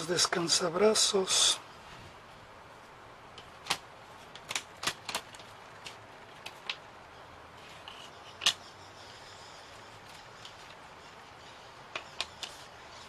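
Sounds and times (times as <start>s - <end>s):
wooden pieces clicking and tapping: 3.4s - 6.9s, 7.8s - 11.2s, 11.8s - 13.0s.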